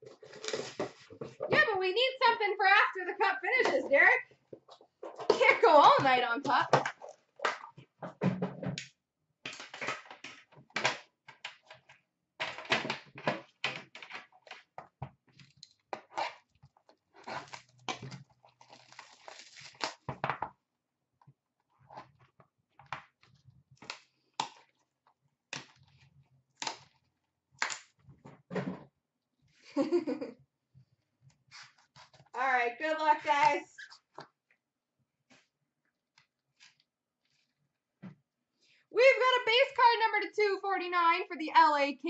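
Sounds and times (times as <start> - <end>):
packaging crinkling and tearing: 0.1 - 1.0, 17.2 - 20.1.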